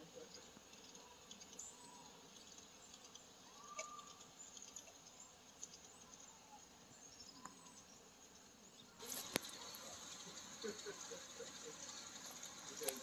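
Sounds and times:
faint high ticks: 9.2s - 10.5s.

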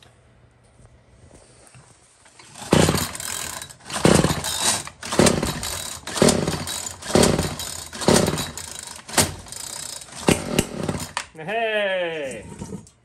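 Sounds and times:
string trimmer pull-start attempts: 2.4s - 11.3s.

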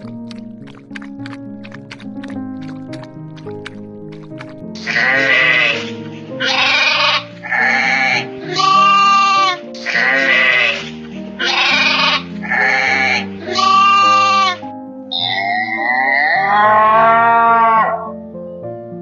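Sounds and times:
background music: 0.0s - 19.0s
sheep bleating: 4.8s - 18.1s.

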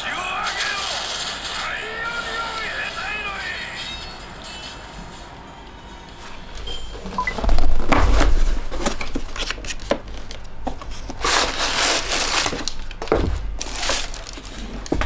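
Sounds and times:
tissue paper rustling: 10.9s - 14.9s.

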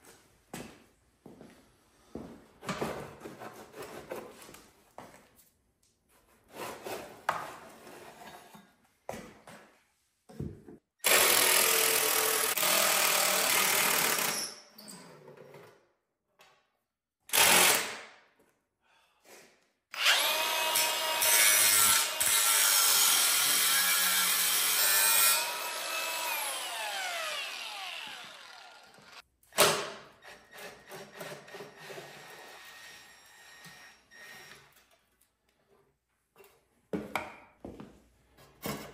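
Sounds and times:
abrasive wheel cutting steel: 20.0s - 29.2s.

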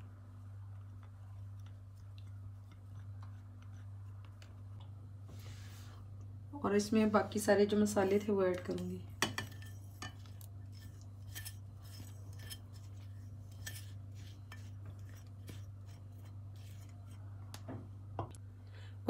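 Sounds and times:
steady low hum: 0.0s - 19.0s
spatula scraping on dishware: 7.9s - 17.3s.

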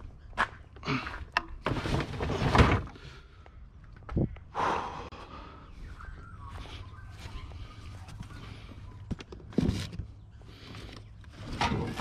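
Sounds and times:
scraping clatter: 11.4s - 12.0s.

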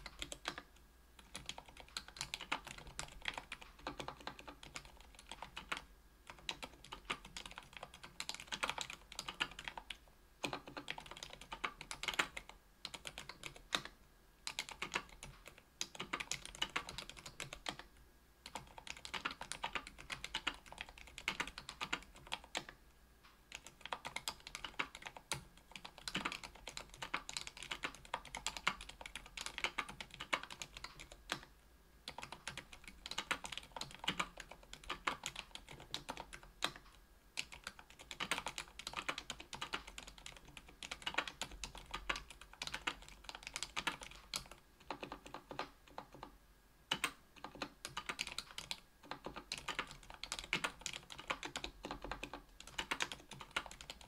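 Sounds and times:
muted keyboard keystrokes: 0.0s - 17.8s, 18.4s - 22.8s, 23.5s - 31.5s, 32.1s - 46.3s, 46.9s - 54.0s.

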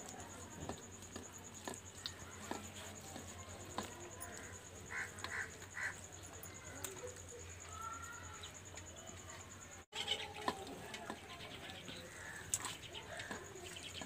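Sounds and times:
birds calling: 4.3s - 8.6s, 11.1s - 14.0s.

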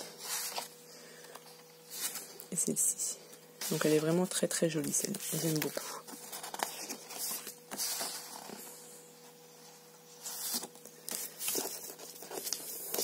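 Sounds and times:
paper sheets rustling: 0.0s - 2.4s, 3.6s - 8.8s, 10.2s - 13.0s.

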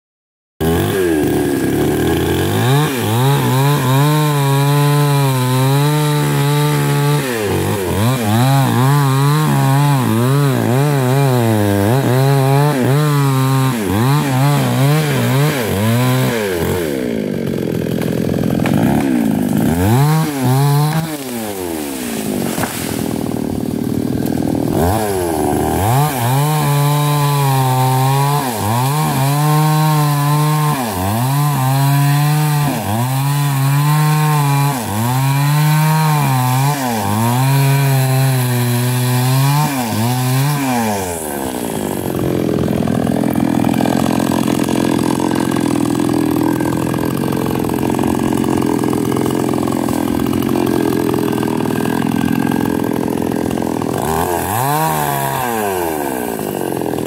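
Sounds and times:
chainsaw cutting logs: 0.6s - 57.0s.

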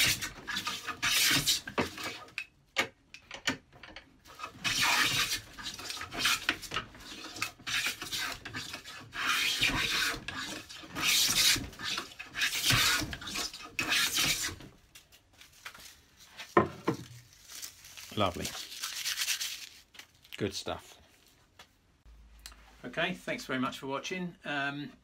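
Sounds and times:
hand plane shaving wood: 0.0s - 2.3s, 4.3s - 14.7s.

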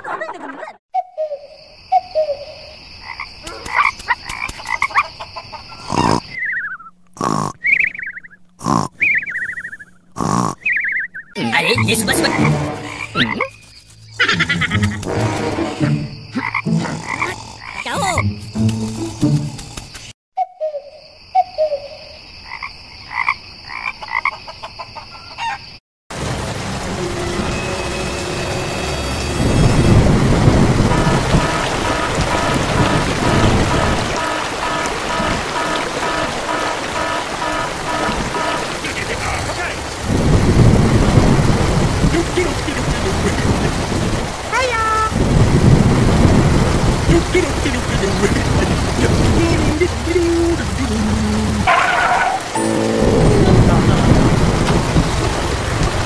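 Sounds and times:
comic croaking sound effect: 5.7s - 6.4s, 7.2s - 7.7s, 8.6s - 9.0s, 10.2s - 10.7s, 11.4s - 15.1s, 15.8s - 18.4s, 30.9s - 38.8s, 47.3s - 54.2s
rain: 11.4s - 13.3s, 14.4s - 20.1s, 26.1s - 56.0s
high insect drone: 15.8s - 20.1s
chickens clucking: 24.0s - 25.6s.

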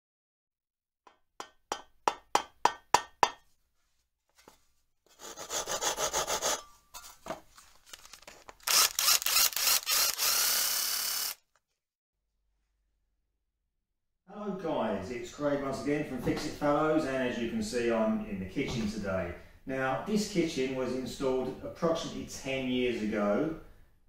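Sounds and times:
sharp tool knocks: 1.1s - 3.4s
rasping tool strokes: 5.1s - 7.2s, 8.0s - 11.4s.

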